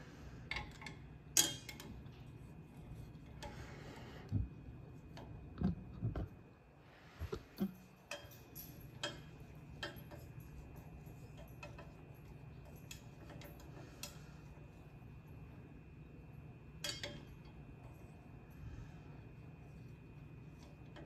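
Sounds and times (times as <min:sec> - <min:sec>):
steady low hum: 0:00.0 - 0:21.0
wires clicking against metal pot: 0:00.5 - 0:02.4, 0:07.3 - 0:15.0, 0:16.6 - 0:18.1, 0:19.4 - 0:21.0.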